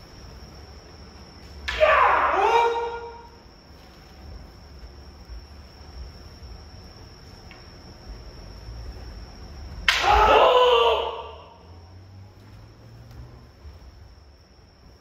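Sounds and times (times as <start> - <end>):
person shouting: 1.7 - 3.3, 9.9 - 11.6.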